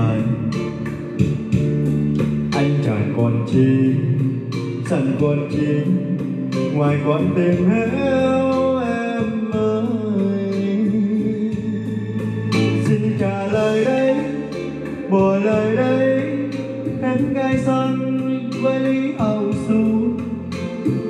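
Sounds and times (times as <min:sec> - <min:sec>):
sung ballad with guitar and bass: 0:00.0 - 0:21.0.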